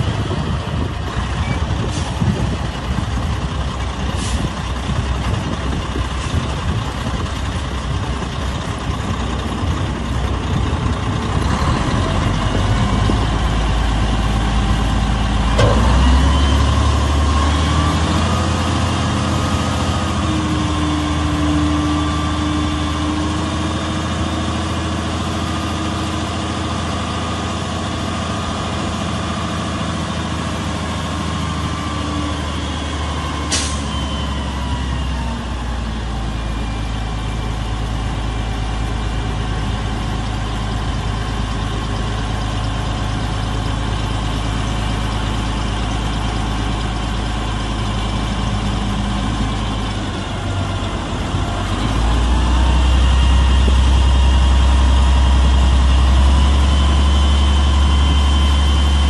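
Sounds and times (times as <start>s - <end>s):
diesel truck engine running: 0.0s - 59.0s
hydraulic hoist raising dump bed: 14.3s - 20.0s.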